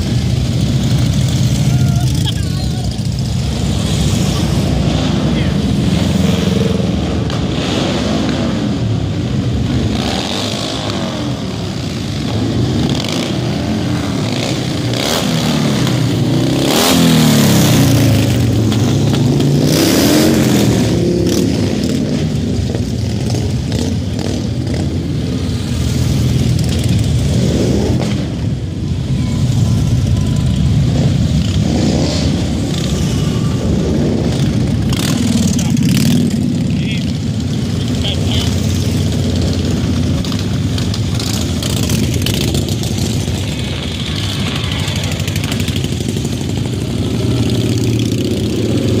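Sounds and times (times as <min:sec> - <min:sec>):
motorcycle engines revving: 0:00.0 - 0:49.0
motorcycles riding past: 0:00.0 - 0:49.0.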